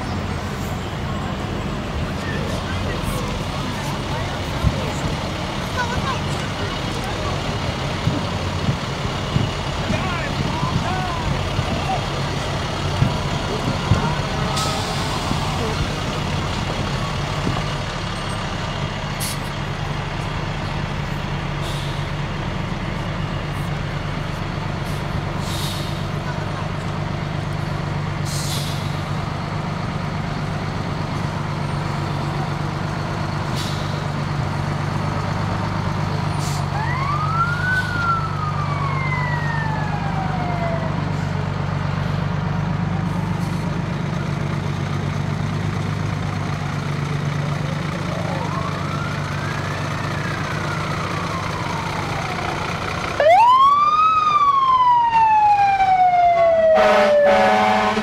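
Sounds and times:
fire engines running: 0.0 - 58.0
siren rising and falling: 36.8 - 41.1, 48.1 - 52.6, 53.2 - 58.0
loud siren winding up: 53.2 - 57.8
horn blast: 56.7 - 58.0.

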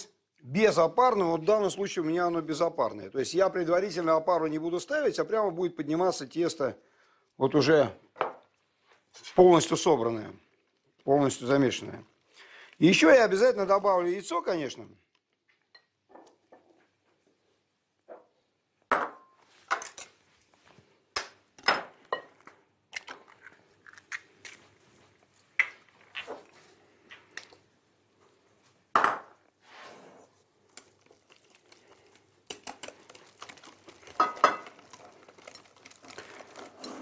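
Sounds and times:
utensils clinking on glass bowl: 34.2 - 37.0.

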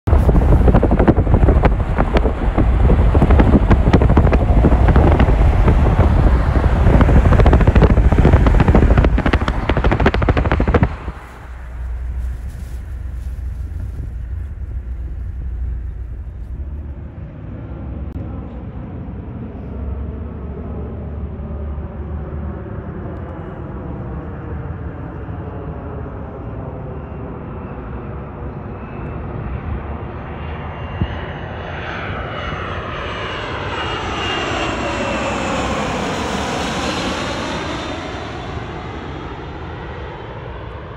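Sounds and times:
wind buffeting microphone: 0.0 - 18.2, 29.2 - 40.9
jet engine whining: 0.1 - 40.9.

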